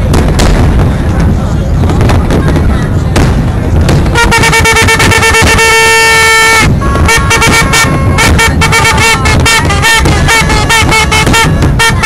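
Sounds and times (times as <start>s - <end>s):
fireworks banging: 0.0s - 12.0s
boat horns blasting: 4.0s - 12.0s.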